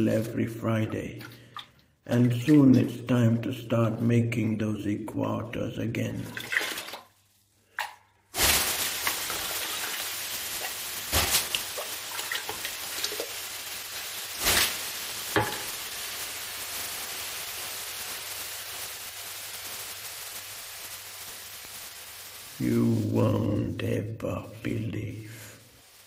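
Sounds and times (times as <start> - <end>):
water hissing on hot stones: 1.4 - 3.7, 8.3 - 26.0.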